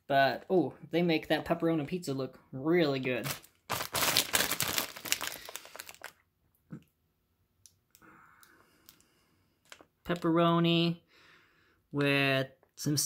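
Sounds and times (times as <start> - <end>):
plastic bag crinkling: 3.2 - 6.2, 9.6 - 9.9.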